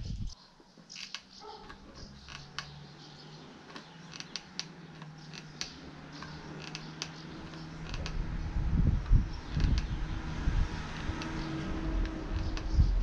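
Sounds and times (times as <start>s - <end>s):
electric stapler clicks and creaks: 0.9s - 2.8s, 3.7s - 8.3s, 9.0s - 10.0s, 12.0s - 12.8s.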